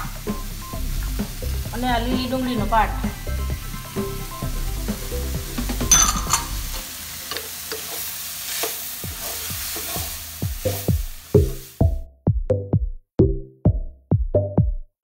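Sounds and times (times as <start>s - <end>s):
electronic music with drum beat: 0.0s - 7.0s, 9.0s - 14.9s
vegetables sizzling: 0.0s - 11.9s
spatula scraping pan: 7.3s - 10.2s.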